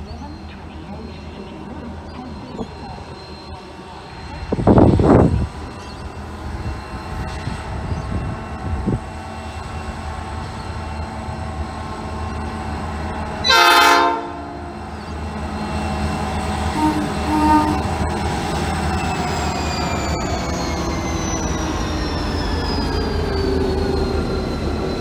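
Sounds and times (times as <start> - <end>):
diesel locomotive engine running: 0.0 - 25.0
locomotive horn blast: 13.4 - 14.8, 16.7 - 17.9.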